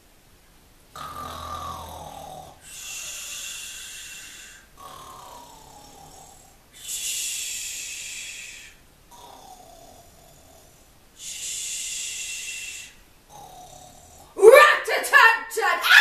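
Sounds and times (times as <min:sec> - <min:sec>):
cartoon pig snoring: 0:01.0 - 0:14.4.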